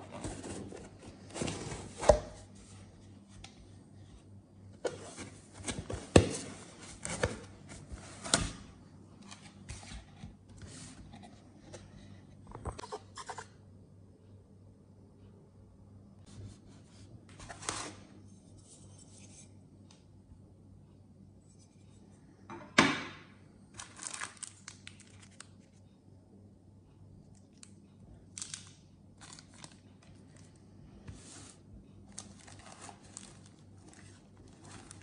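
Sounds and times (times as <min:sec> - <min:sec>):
plastic and foam crinkling: 0:23.8 - 0:25.5, 0:29.2 - 0:35.0
sharp plastic crackle: 0:23.8 - 0:25.5.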